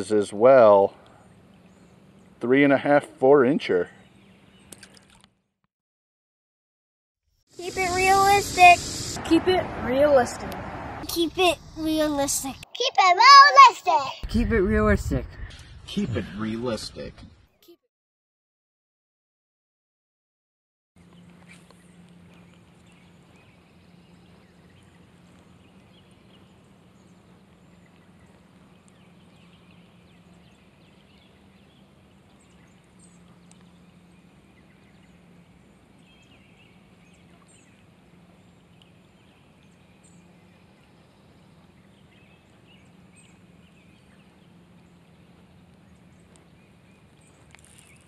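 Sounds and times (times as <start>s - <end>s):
light rain hiss: 7.6s - 12.6s
low steady hum: 21.0s - 48.0s.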